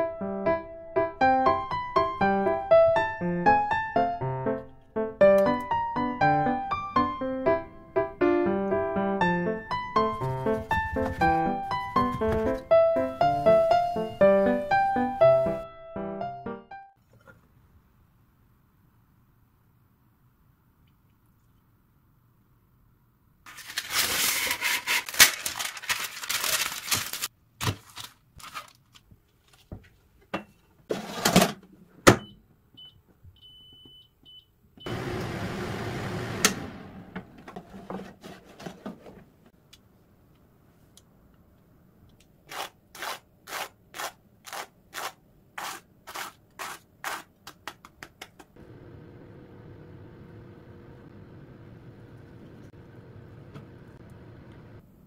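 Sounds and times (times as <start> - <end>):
kitchen rustling and clatter: 10.1 - 12.6, 23.5 - 31.8, 37.2 - 39.5
faint steady hum: 48.6 - 55.0.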